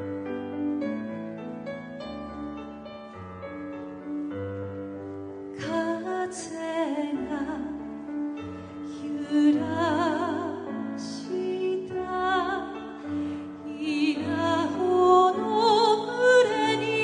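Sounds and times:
woman singing: 5.6s - 17.0s.

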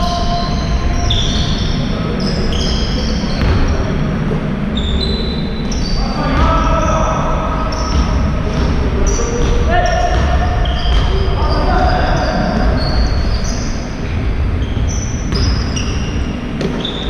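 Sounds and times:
sneakers squeaking on gym floor: 0.0s - 17.0s
basketball bouncing: 3.3s - 3.8s, 7.7s - 11.5s, 12.5s - 17.0s.

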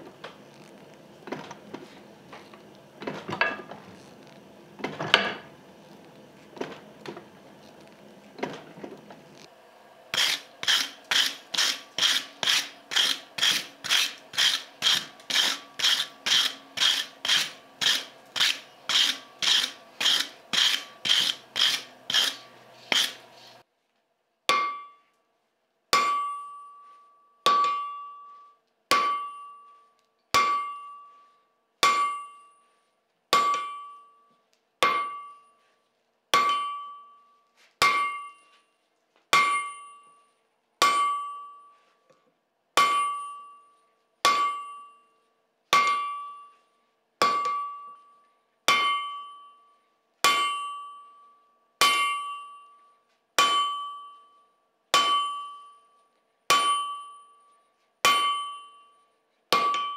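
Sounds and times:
anvil ringing tone: 24.5s - 25.1s, 26.0s - 32.8s, 33.4s - 35.6s, 36.4s - 38.7s, 39.4s - 41.9s, 42.8s - 45.2s, 45.8s - 46.6s, 47.2s - 59.9s
hammer blows on anvil: 26.0s - 26.8s, 27.5s - 29.7s, 30.4s - 31.2s, 31.8s - 32.6s, 33.4s - 34.2s, 34.8s - 35.5s, 36.4s - 37.2s, 37.8s - 38.5s, 39.3s - 40.2s, 40.8s - 41.7s, 42.8s - 45.1s, 45.7s - 46.5s, 47.2s - 48.0s, 48.7s - 49.6s, 50.2s - 51.2s, 51.8s - 52.8s, 53.4s - 54.3s, 54.9s - 55.9s, 56.5s - 57.4s, 58.0s - 59.9s.

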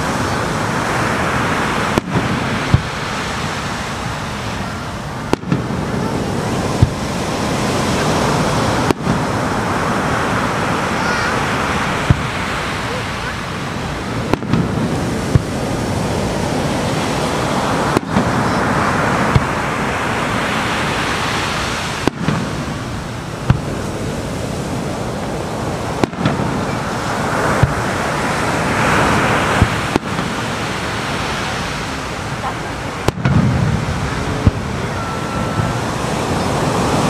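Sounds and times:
waves breaking on shore: 0.0s - 37.0s
firework shells bursting: 1.7s - 4.3s, 5.1s - 9.5s, 11.9s - 12.4s, 14.0s - 15.8s, 17.8s - 20.2s, 21.9s - 24.3s, 25.2s - 31.0s, 33.0s - 35.9s.

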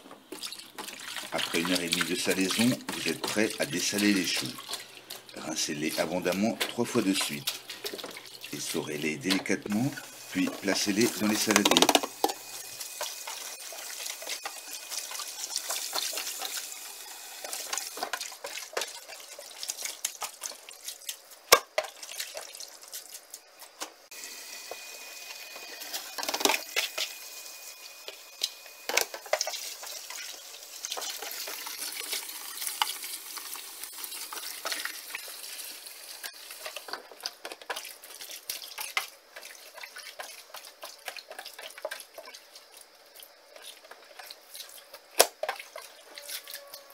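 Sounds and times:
tap water running into sink: 0.3s - 20.8s, 28.1s - 42.8s
plastic colander clatter: 10.4s - 12.4s.

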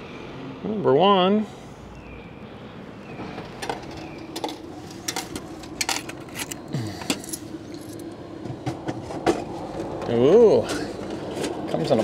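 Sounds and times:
vending machine motor humming: 2.9s - 12.0s
mechanism clicks and clatters: 3.6s - 8.1s.

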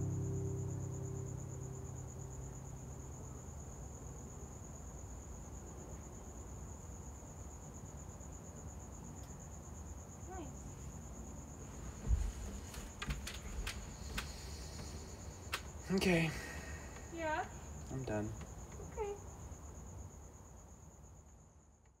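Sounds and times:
acoustic guitar chord ringing: 0.0s - 3.4s
cricket trilling: 0.0s - 22.0s.

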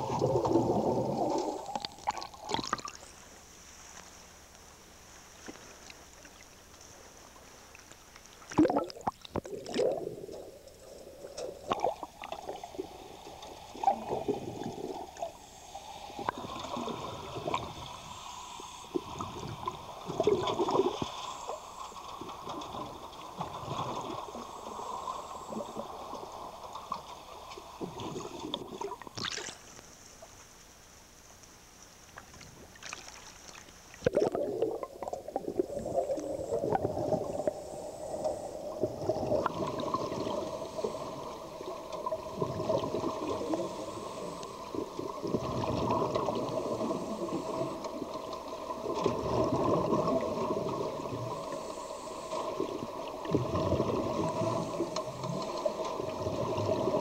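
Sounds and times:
exhaled bubbles: 0.0s - 3.1s, 8.4s - 21.6s, 22.2s - 29.7s, 32.6s - 57.0s
steady hum: 0.0s - 57.0s
regulator breathing underwater: 9.6s - 21.9s, 35.5s - 41.8s, 42.6s - 48.2s, 49.5s - 55.8s.

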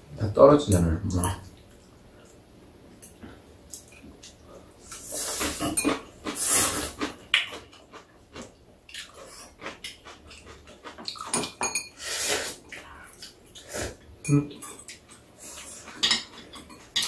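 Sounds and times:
noodles being slurped: 5.0s - 7.2s.

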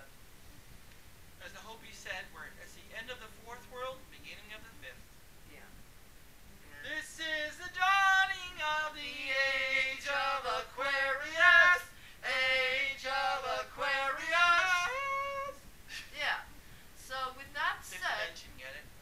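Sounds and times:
women singing: 6.6s - 15.6s.

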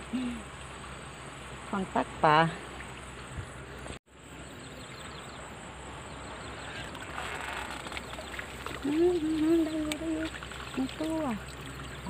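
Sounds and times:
water splashing off a net: 6.8s - 12.0s.

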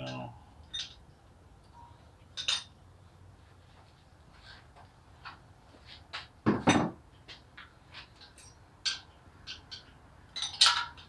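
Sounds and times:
metal tools clinking: 0.0s - 1.0s, 1.7s - 2.7s, 8.2s - 11.0s.

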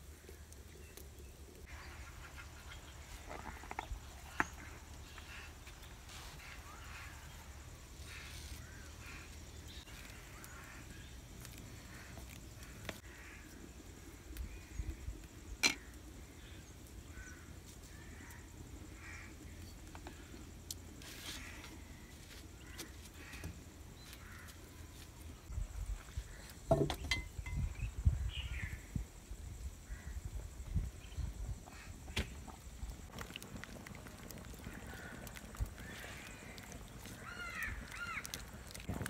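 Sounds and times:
faint bird calls: 1.6s - 26.7s, 33.2s - 39.0s.

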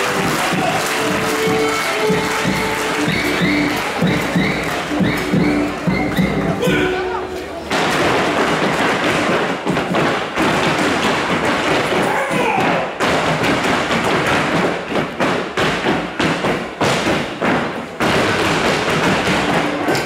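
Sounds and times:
boots stamping on stage floor: 0.0s - 6.9s, 7.7s - 20.0s.

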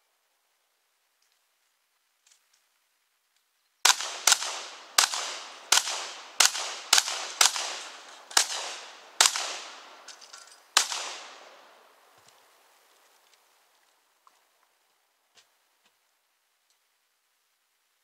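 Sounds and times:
faint clicks: 1.1s - 3.6s
gunshots echoing: 3.8s - 12.1s.

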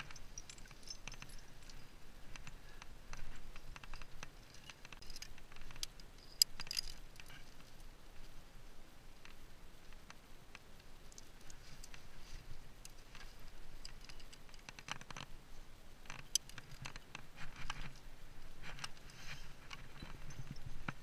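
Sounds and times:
climbing gear clinking: 0.0s - 7.8s, 11.1s - 15.3s, 16.0s - 21.0s.

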